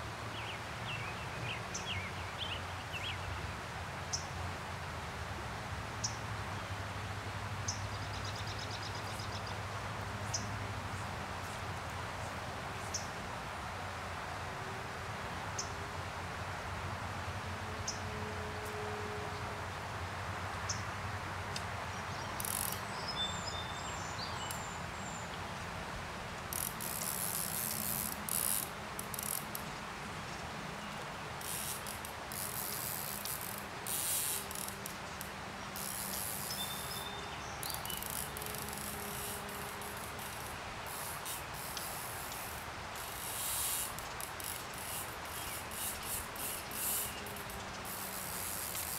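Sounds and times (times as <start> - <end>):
flowing stream water: 19.4 - 48.9
fly reel ratchet buzzing: 22.4 - 22.8, 26.5 - 29.7, 31.4 - 37.0, 37.6 - 48.9.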